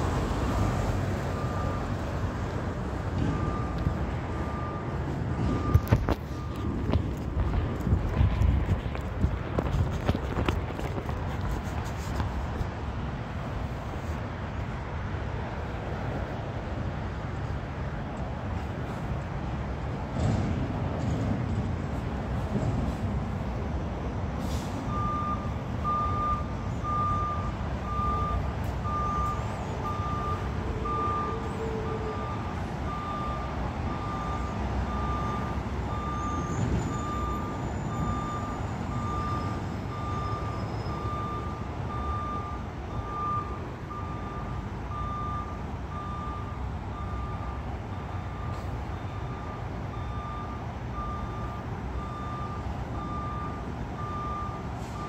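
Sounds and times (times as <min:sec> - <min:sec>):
truck reverse alarm beeping: 0:00.0 - 0:12.1, 0:24.4 - 0:55.0
truck engine rumbling: 0:00.0 - 0:55.0.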